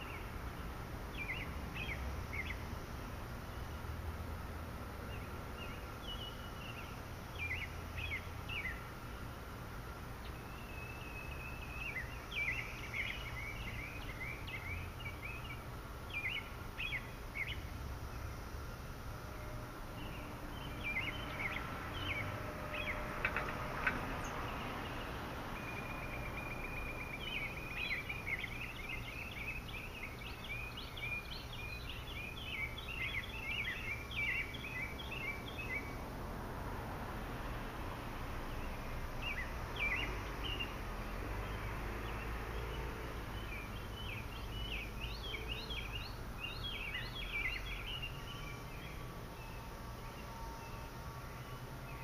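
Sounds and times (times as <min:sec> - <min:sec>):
songbird chirping: 0:00.0 - 0:52.0.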